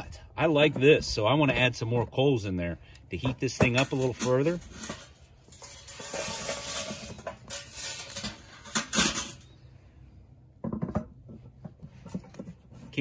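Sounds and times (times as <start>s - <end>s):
charcoal rattling into grill: 3.6s - 9.5s.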